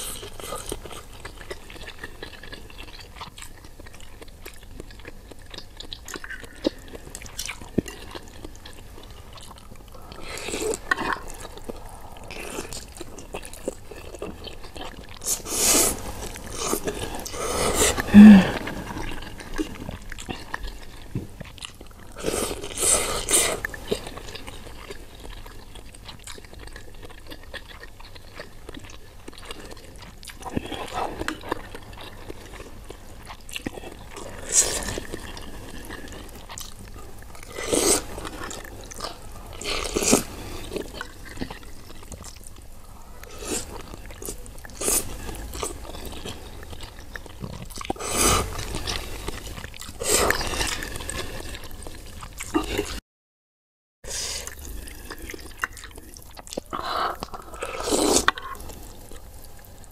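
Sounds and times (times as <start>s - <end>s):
chewing: 0.0s - 53.0s, 54.1s - 59.9s
slurping noodles: 15.2s - 20.5s, 22.1s - 24.7s, 37.4s - 41.2s, 47.6s - 51.8s, 54.1s - 59.0s.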